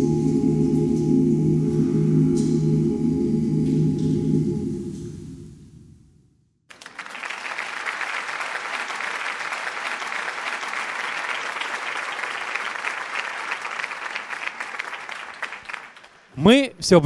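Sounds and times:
audience applauding: 6.7 - 16.3.

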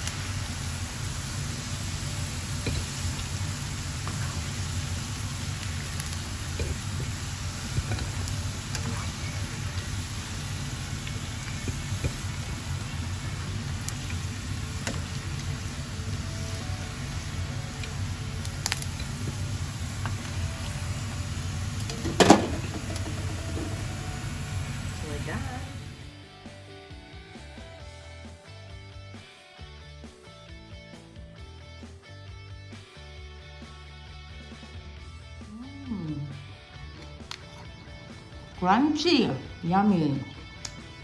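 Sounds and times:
low steady hum: 0.0 - 26.0
chicken deep-frying in oil: 0.0 - 26.1.

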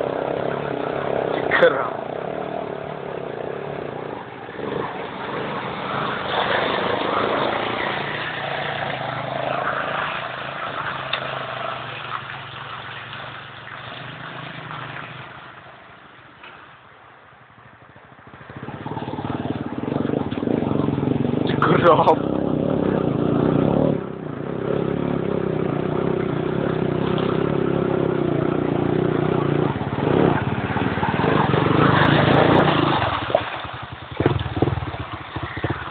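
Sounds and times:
atv engines revving: 0.0 - 15.8, 17.8 - 35.9.

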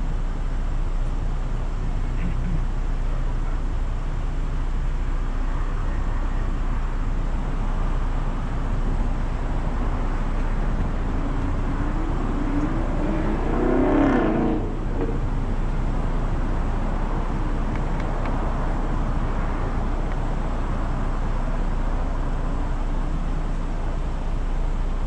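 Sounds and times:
car engine idling: 0.0 - 25.0
vehicle passing by: 10.9 - 15.3.

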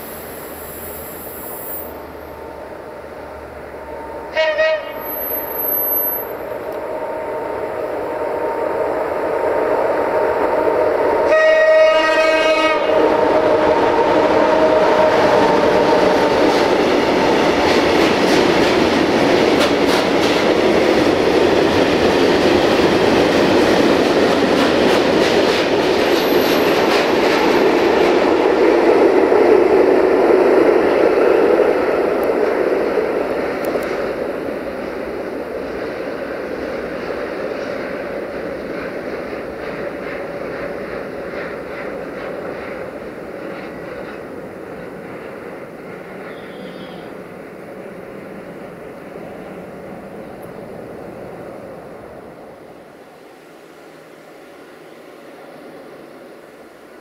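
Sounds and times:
train horn blast: 4.2 - 6.4, 11.2 - 16.1, 46.2 - 47.2
train wheels clicking over rail joints: 14.6 - 46.9.

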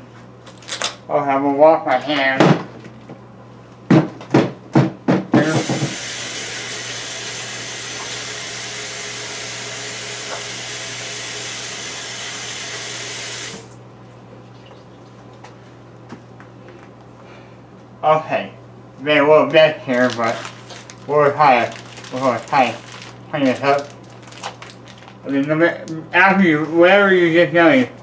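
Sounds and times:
sink faucet running: 5.4 - 13.8.

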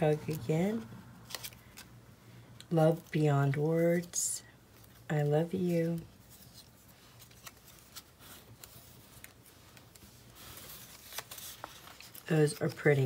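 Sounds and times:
cardstock pieces rustling on table: 4.8 - 13.0.

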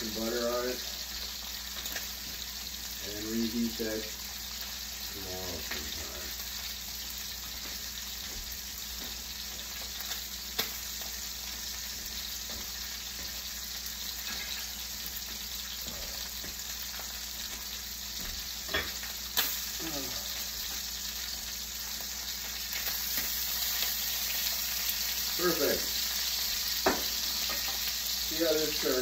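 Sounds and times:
steak sizzling in a pan: 0.0 - 29.0.

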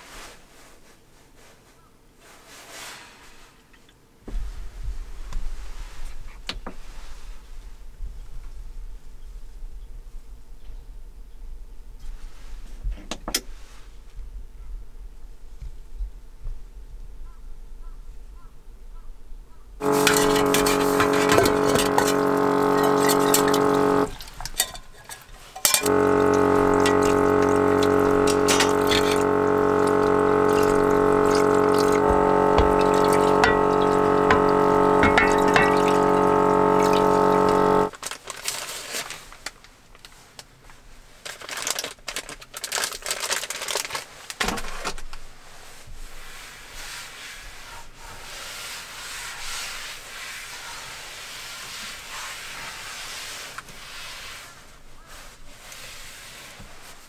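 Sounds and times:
water pump humming: 19.8 - 24.7, 25.6 - 37.9
tap water running into metal basin: 19.8 - 24.8, 25.6 - 37.9.

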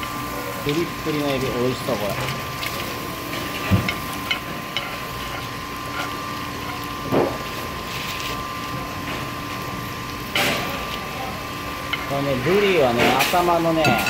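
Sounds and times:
food sizzling in pan: 0.0 - 14.0
steady hum: 0.0 - 14.0
metal spoon clinking on pan: 13.8 - 14.0.

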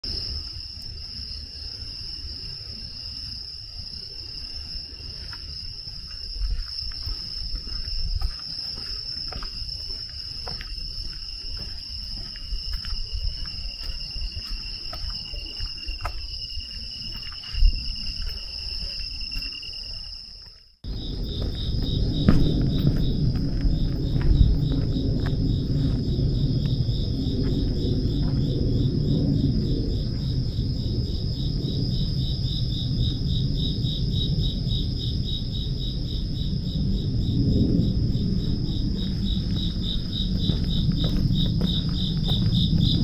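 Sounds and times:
insects chorus: 0.0 - 43.0
low thumps: 20.8 - 30.7.

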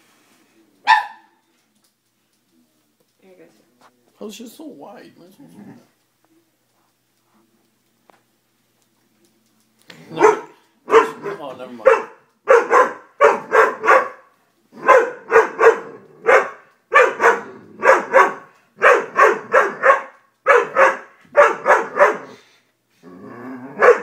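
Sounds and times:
dog barking: 0.8 - 1.4, 10.1 - 22.4, 23.8 - 24.0.

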